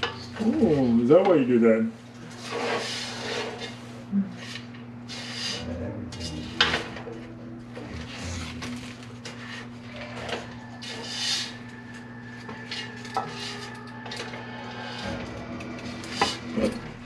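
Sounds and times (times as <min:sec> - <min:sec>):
steady low hum: 0:00.0 - 0:17.0
spatula scraping a pan: 0:02.2 - 0:07.2, 0:09.2 - 0:17.0.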